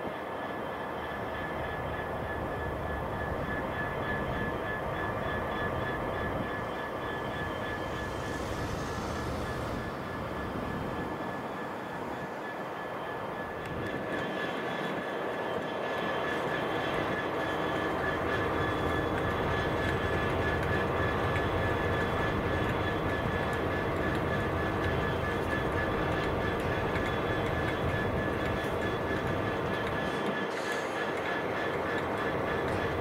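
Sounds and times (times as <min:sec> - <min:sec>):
locomotive engine drone: 0:00.0 - 0:33.0
high whine: 0:01.8 - 0:14.3.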